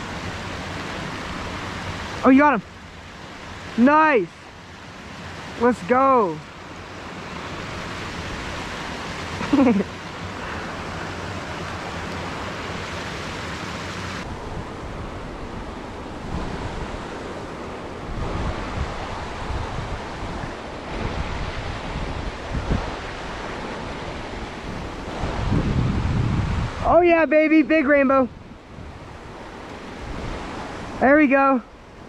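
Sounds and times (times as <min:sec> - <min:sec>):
creek running over rocks: 0:00.0 - 0:14.3, 0:15.0 - 0:32.0
wind on microphone: 0:06.6 - 0:31.1.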